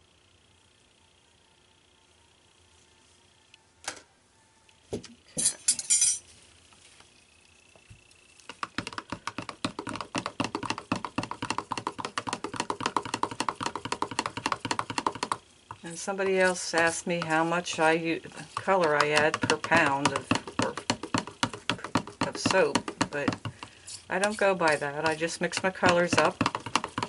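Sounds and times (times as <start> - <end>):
utensils clattering: 5.3 - 6.2
utensils knocking: 16.1 - 27.0.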